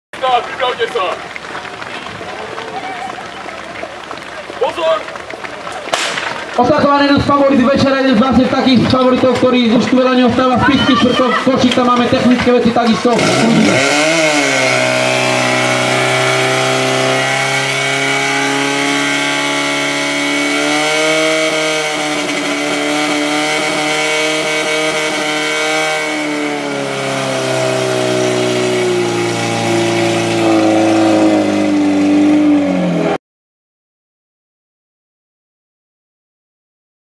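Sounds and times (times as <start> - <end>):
fire pump engine running: 0.2 - 21.0.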